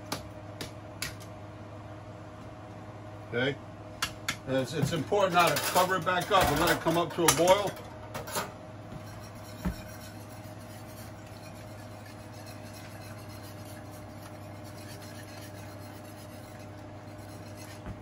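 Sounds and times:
steady background hum: 0.0 - 18.0
soft scraping against pan: 8.9 - 18.0
utensil stirring pasta in a skillet: 9.0 - 17.8.

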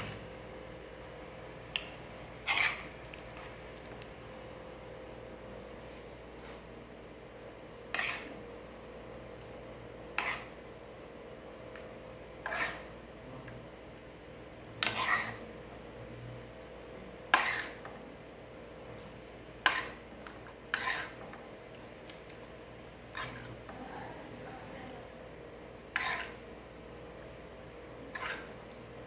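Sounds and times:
metal spoon scraping a frying pan: 2.5 - 2.9, 7.9 - 8.4, 10.2 - 10.5, 12.4 - 12.9, 14.8 - 15.4, 17.3 - 17.9, 19.6 - 20.0, 20.7 - 21.3, 23.1 - 23.6, 25.9 - 26.4, 28.1 - 28.6.

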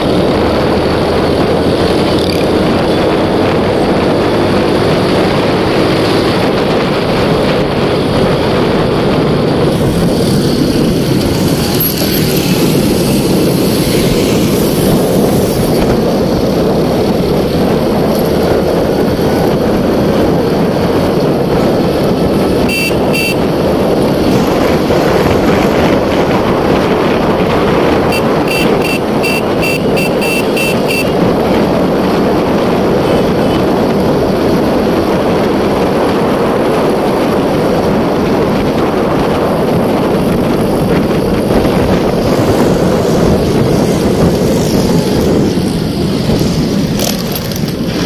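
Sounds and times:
motorcycle engine running: 0.0 - 48.0
wind rushing over microphone: 0.0 - 48.0
quick high beeps: 22.7 - 23.4, 28.1 - 31.2.

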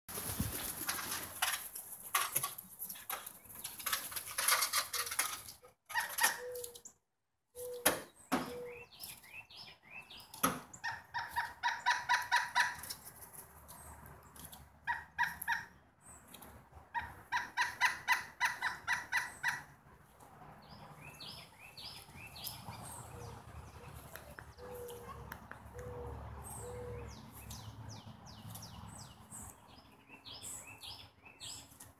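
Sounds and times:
woodpecker calling: 5.9 - 7.0, 7.6 - 13.1, 14.8 - 16.3, 16.9 - 19.7, 20.6 - 31.7.

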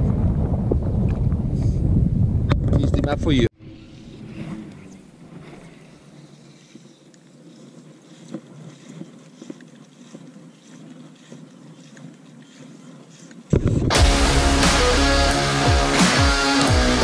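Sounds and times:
wind on microphone: 0.0 - 6.6, 12.5 - 14.0
faint handling sounds: 4.7 - 13.5
loud music: 13.9 - 17.0.

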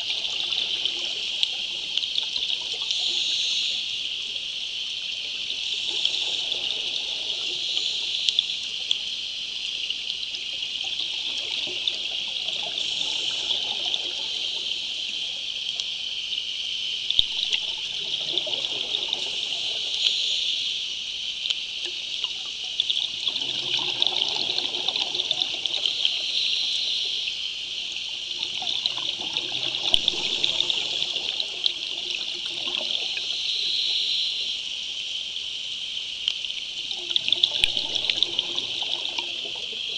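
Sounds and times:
bubbles gurgling: 0.0 - 3.1, 5.8 - 7.9, 10.7 - 15.1, 17.2 - 20.1, 22.8 - 26.4, 28.2 - 33.3, 36.8 - 39.9
underwater hiss with crackle: 0.0 - 39.9.

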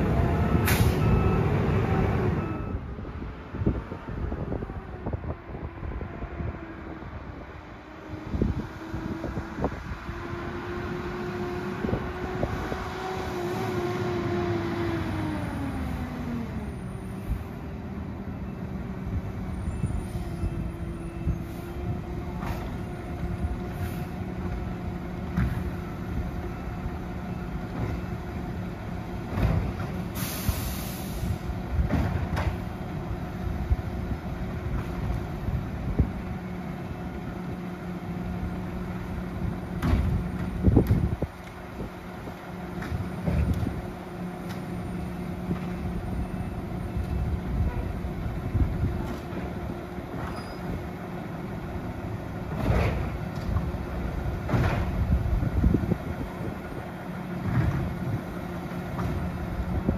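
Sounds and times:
air brake hiss: 0.6 - 1.0, 30.1 - 31.5.

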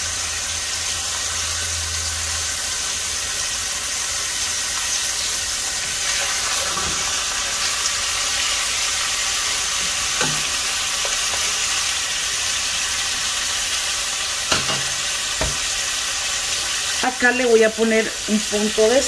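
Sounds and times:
meat sizzling in hot oil: 0.0 - 19.0
wooden spoon knocking on pan: 14.5 - 15.7.

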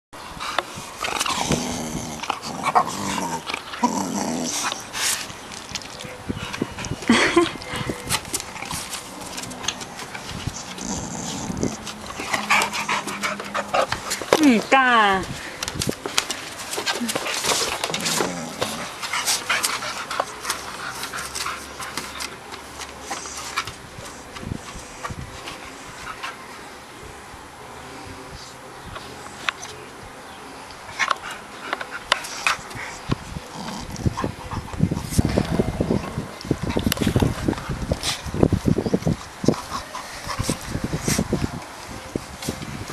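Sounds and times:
dogs growling: 0.9 - 5.7, 6.4 - 14.4, 16.8 - 22.2, 31.1 - 37.4
dog panting: 6.3 - 14.4, 39.5 - 41.3
dog claws clicking and scuffing: 7.6 - 14.7, 15.6 - 25.6.

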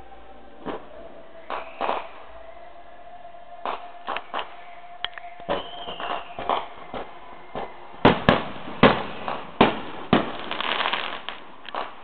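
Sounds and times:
fireworks bursting with bangs: 0.6 - 2.2, 5.4 - 12.0.

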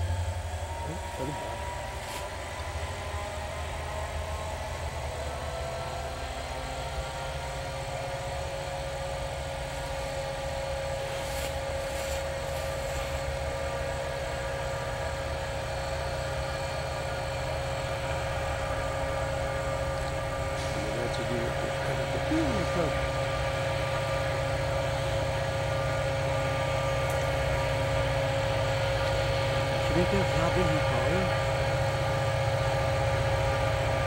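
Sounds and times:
locomotive engine throbbing with whine: 0.0 - 34.0.

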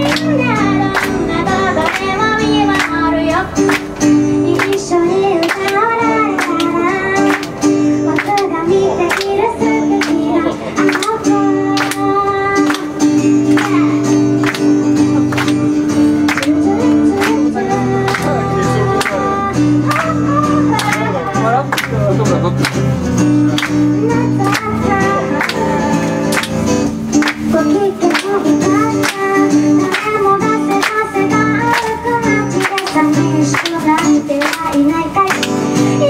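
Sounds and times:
woman singing: 0.0 - 15.5, 16.2 - 21.5, 23.3 - 36.0
audience clapping along: 0.0 - 36.0
strummed acoustic guitar: 0.0 - 36.0.

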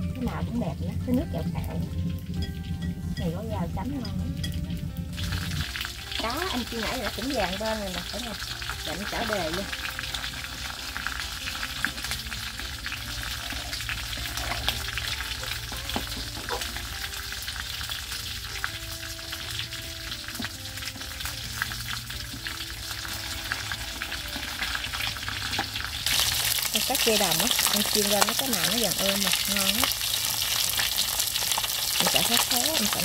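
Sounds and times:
fish frying in hot oil: 0.0 - 33.0
spatula and chopsticks scraping: 13.2 - 16.7.

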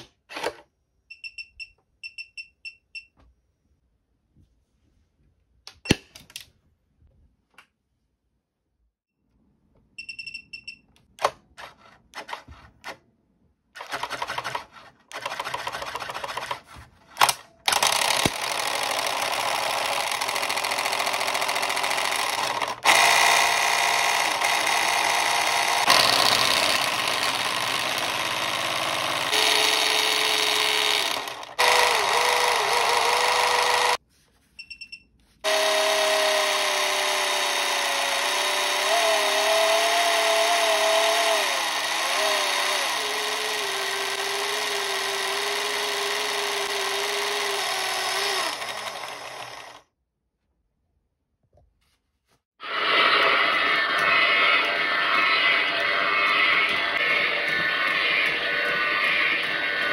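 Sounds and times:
short electronic beeps: 1.1 - 3.2, 10.0 - 10.9, 34.6 - 35.2
toy motor rattling and whining: 13.8 - 34.0, 35.4 - 49.8, 52.6 - 59.9.

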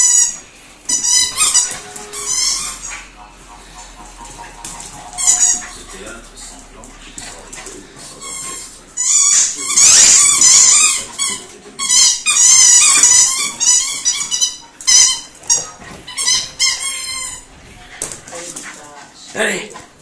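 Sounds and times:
dog crying: 0.0 - 3.1, 5.1 - 6.0, 8.2 - 17.6.

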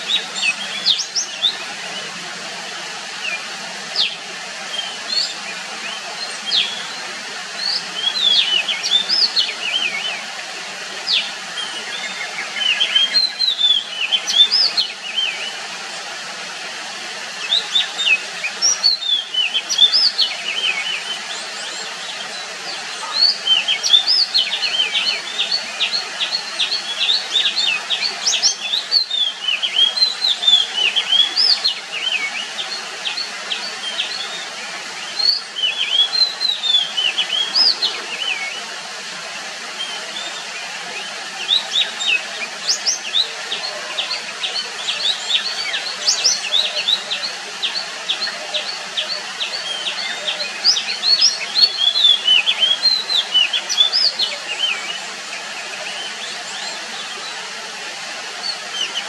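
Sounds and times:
steady background hiss: 0.0 - 59.0
bird singing whistles: 11.1 - 15.5, 17.4 - 21.2, 26.6 - 32.4.

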